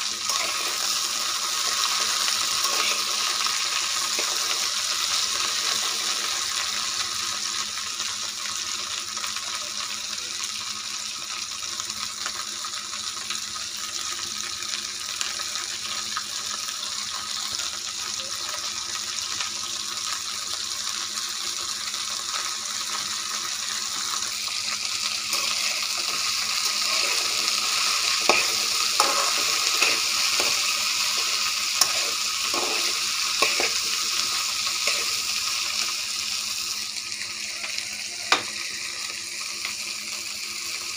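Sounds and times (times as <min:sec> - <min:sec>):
vegetables sizzling in oil: 0:00.0 - 0:40.9
spatula clicking and scraping pan: 0:00.3 - 0:01.0, 0:25.3 - 0:35.2.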